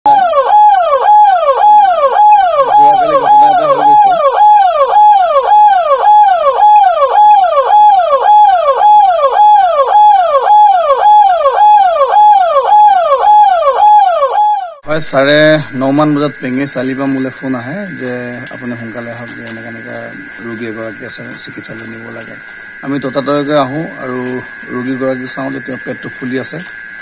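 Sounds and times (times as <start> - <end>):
ambulance siren: 0.0 - 27.0
low tone: 2.3 - 6.0.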